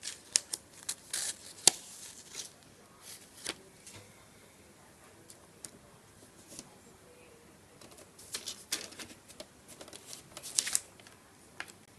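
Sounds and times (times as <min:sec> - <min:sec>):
paper rustling under cat's paws: 0:08.2 - 0:11.1.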